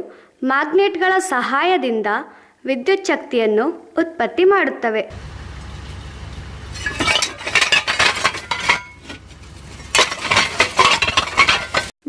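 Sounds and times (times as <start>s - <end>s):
low machine rumble: 5.1s - 11.4s
metal rotors clanking together: 5.1s - 11.9s.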